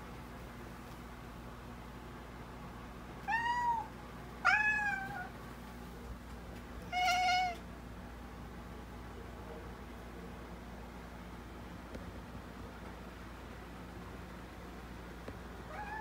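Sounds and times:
cat meowing: 0:03.2 - 0:05.3, 0:06.9 - 0:07.6, 0:15.7 - 0:16.0.

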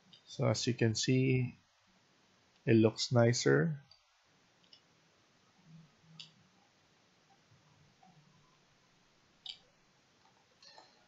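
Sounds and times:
computer mouse clicks: 0:06.2 - 0:06.4.

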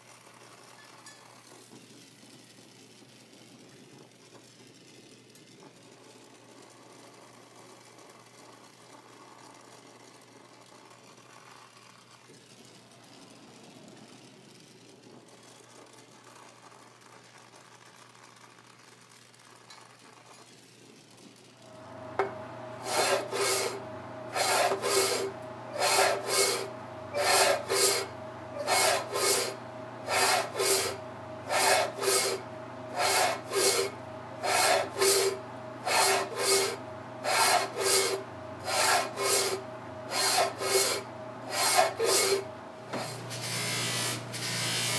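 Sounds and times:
belt sander humming: 0:21.8 - 0:44.9
copper tube grinding on belt: 0:22.2 - 0:44.9.

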